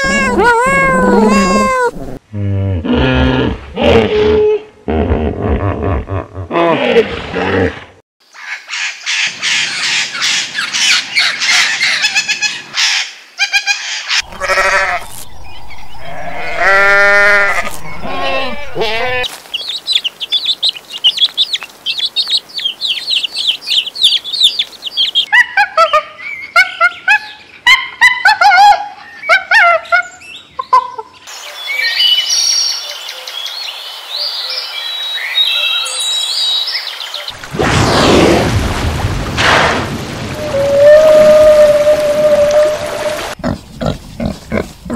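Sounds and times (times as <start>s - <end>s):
bird calls: 8.3s - 27.8s
chicks peeping: 19.5s - 25.3s.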